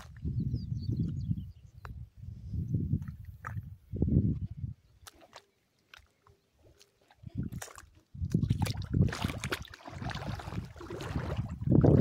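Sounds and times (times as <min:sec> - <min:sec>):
wind buffeting microphone: 0:00.0 - 0:05.1, 0:07.2 - 0:12.0
small waves lapping: 0:05.0 - 0:12.0.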